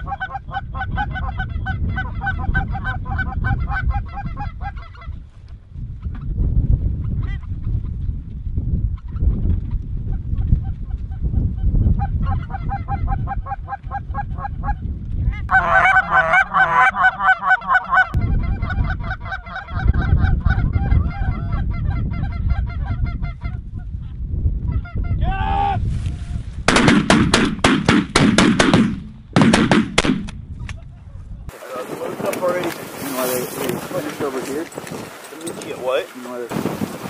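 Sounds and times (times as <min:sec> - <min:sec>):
geese honking: 0:00.0 - 0:05.1, 0:15.5 - 0:23.5
shotgun shots: 0:26.7 - 0:30.4.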